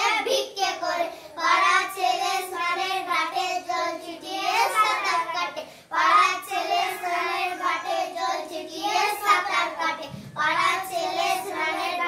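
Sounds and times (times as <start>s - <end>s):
children chanting a poem: 0.0s - 12.0s.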